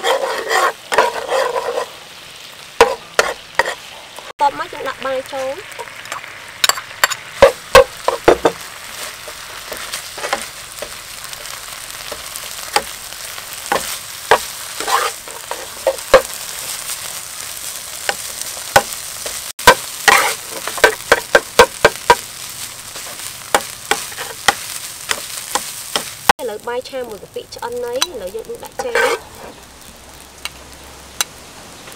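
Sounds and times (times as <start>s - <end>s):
metal spoon scraping a pan: 0.0s - 2.0s, 2.8s - 3.9s, 5.8s - 17.0s, 18.0s - 26.1s, 28.0s - 29.6s
rice sizzling in a pan: 0.0s - 31.9s.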